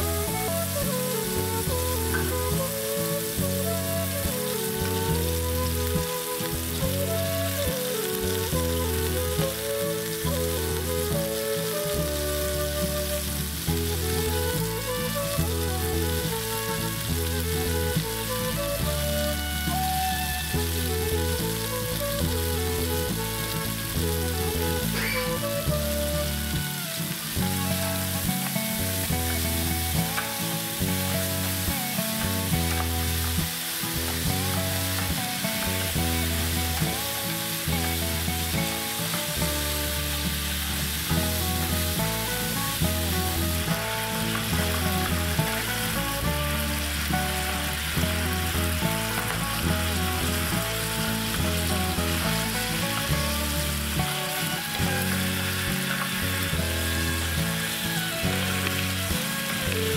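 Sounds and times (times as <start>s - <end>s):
background music with bass line: 0.0s - 59.9s
sauce sizzling in a frying pan: 0.0s - 59.9s.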